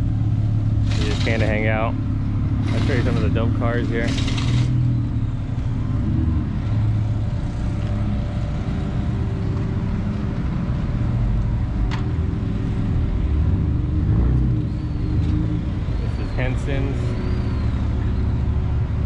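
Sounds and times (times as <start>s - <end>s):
car engine idling: 0.0s - 13.4s.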